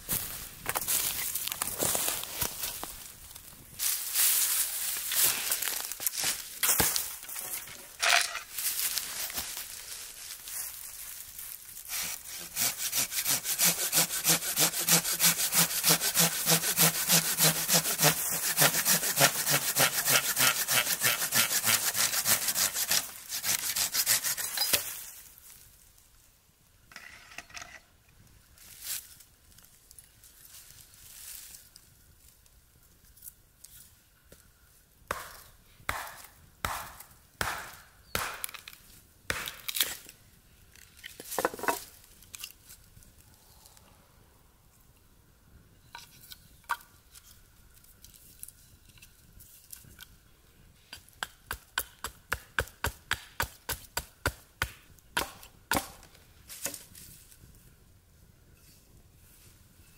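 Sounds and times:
hatchet chopping log: 12.3 - 24.8, 35.1 - 38.6, 39.3 - 39.8, 51.2 - 56.8.

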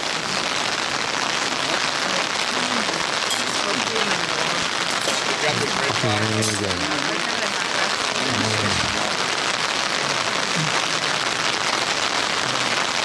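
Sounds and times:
rain and running water: 0.0 - 13.0
low voice: 1.4 - 11.4.

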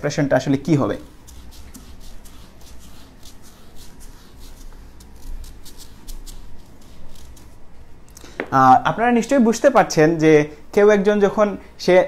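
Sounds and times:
marker pen writing on whiteboard: 0.9 - 7.6.

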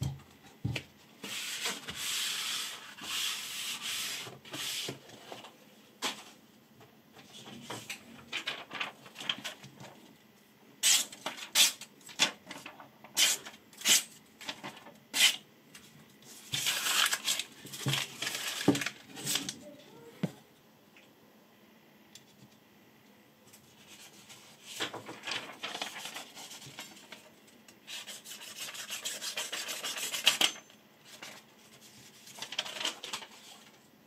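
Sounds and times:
paper rustling: 7.2 - 10.1, 11.2 - 13.4, 16.3 - 19.6, 23.6 - 27.4, 29.0 - 33.8.

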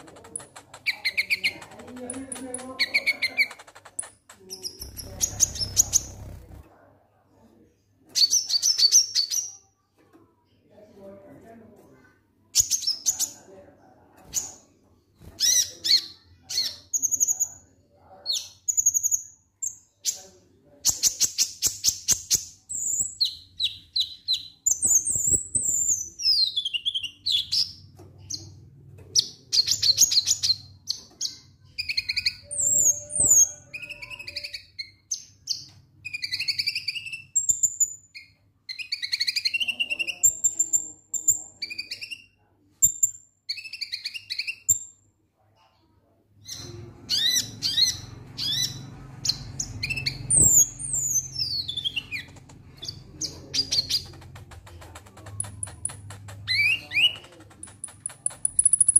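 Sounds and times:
sunbird singing: 0.0 - 6.4.

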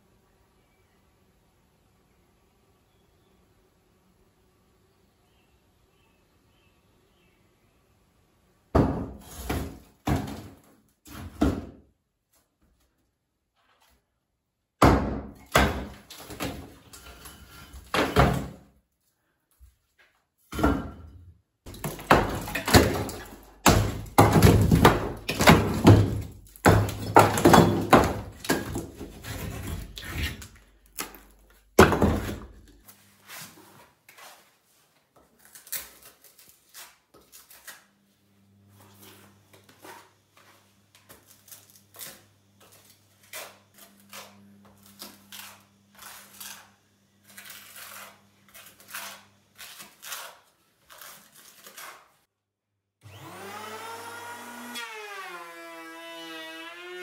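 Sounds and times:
plaster and brick falling: 8.7 - 11.8, 14.8 - 18.6, 20.5 - 32.8.

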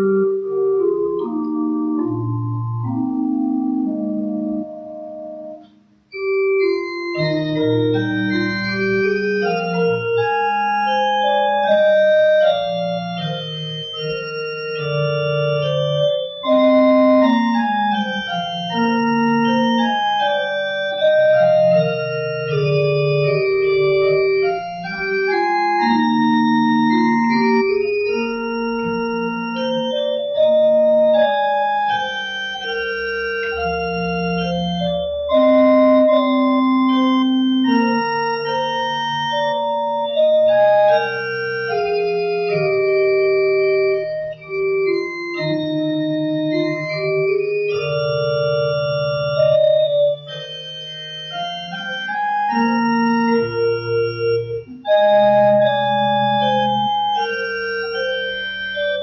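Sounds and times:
pipe organ playing slow chords: 0.0 - 59.0.

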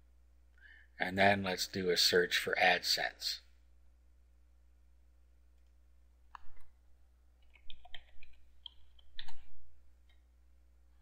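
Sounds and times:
computer keyboard typing: 7.4 - 9.5.

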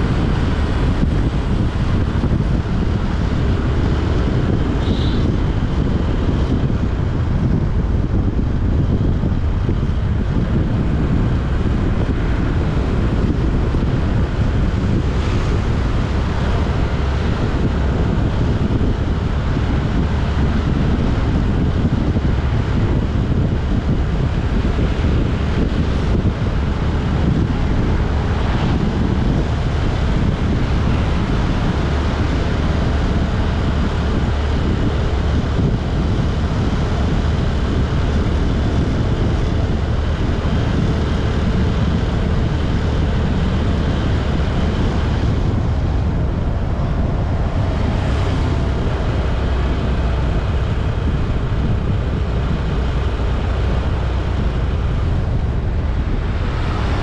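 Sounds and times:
vehicle road noise: 0.0 - 57.0
wind rumbling on microphone: 0.0 - 57.0.

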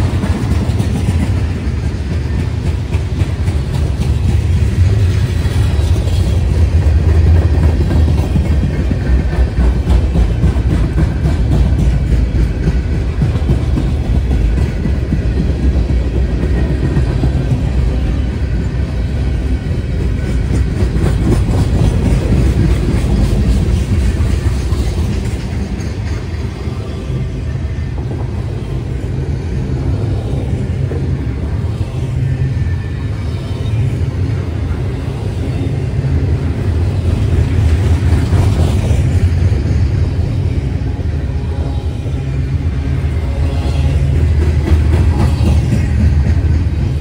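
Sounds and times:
wheels clicking over rail joints: 0.0 - 29.1
train wheels rumbling on rail: 0.0 - 47.0.

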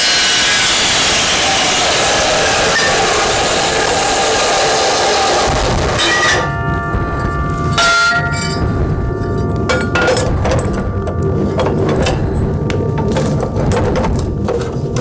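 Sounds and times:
saw cutting through steel: 0.0 - 6.6
steel ringing with metallic tones: 6.0 - 14.9
metal pieces clinking and knocking: 7.2 - 15.0.

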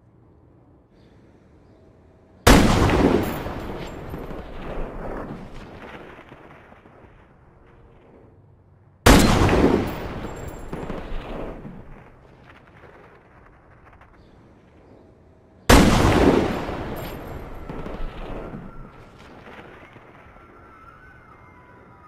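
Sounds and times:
rifle shots echoing: 2.5 - 6.9, 9.1 - 12.9, 15.7 - 20.3.

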